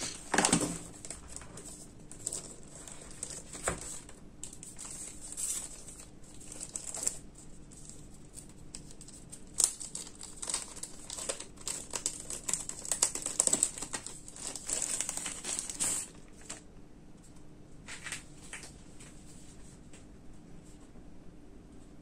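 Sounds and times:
plastic bag crinkling: 0:00.0 - 0:16.6
sharp plastic crackle: 0:00.0 - 0:16.6.

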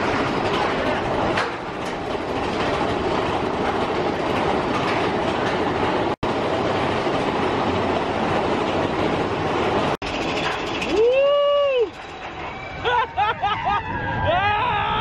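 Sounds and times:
roller coaster track rattling: 0:00.0 - 0:15.0.

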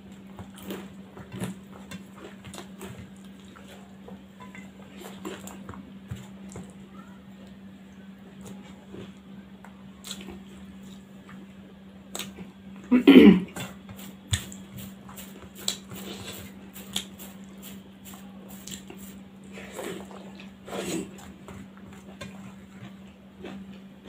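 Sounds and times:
chewing and mouth noises: 0:00.4 - 0:04.1, 0:10.0 - 0:11.4, 0:13.5 - 0:24.0.

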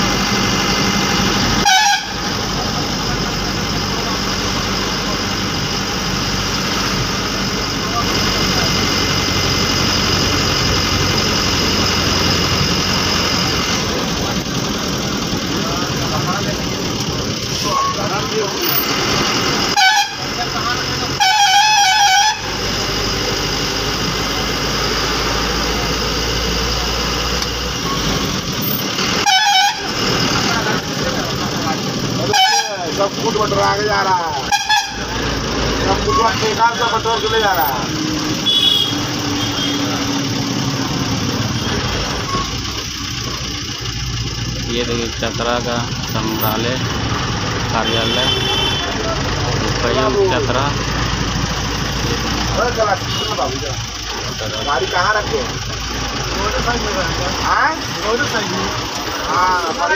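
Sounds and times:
bus engine and road noise: 0:00.0 - 0:59.9
bus horn blast: 0:01.5 - 0:02.4, 0:19.7 - 0:22.7, 0:29.0 - 0:30.2, 0:32.2 - 0:33.0, 0:34.4 - 0:35.3, 0:36.6 - 0:40.1, 0:47.8 - 0:49.2, 0:52.8 - 0:53.7
horn with wavering pitch: 0:01.6 - 0:02.2.

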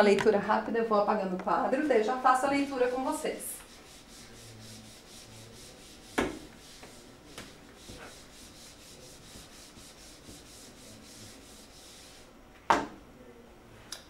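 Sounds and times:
eraser wiping whiteboard: 0:01.8 - 0:12.3.

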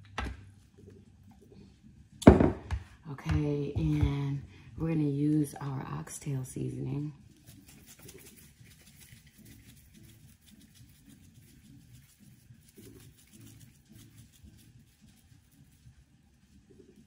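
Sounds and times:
seasoning shaker shaking: 0:06.6 - 0:17.0
seasoning pattering onto meat: 0:07.3 - 0:17.0.

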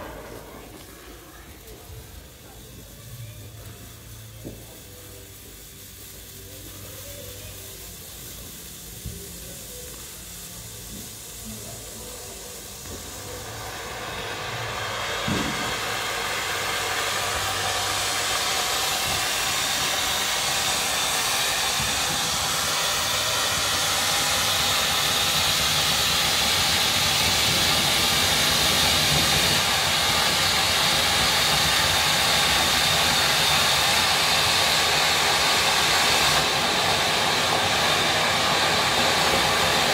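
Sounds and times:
firework fountain hissing: 0:00.0 - 0:39.9
thump: 0:15.3 - 0:15.7.

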